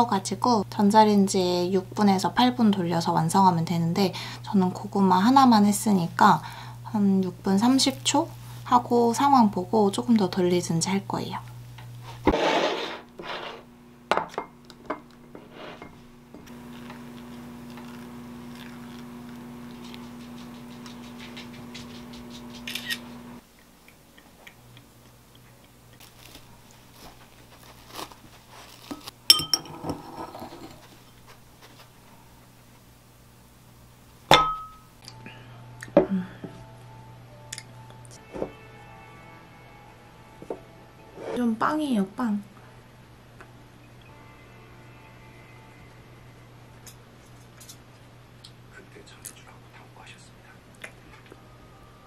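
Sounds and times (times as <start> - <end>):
steady hum: 0.0 - 52.0
glass and ceramic clinking: 29.3 - 31.2, 34.3 - 34.9.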